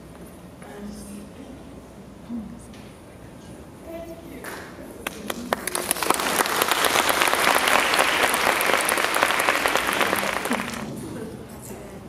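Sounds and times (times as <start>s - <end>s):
audience applauding: 5.1s - 10.9s.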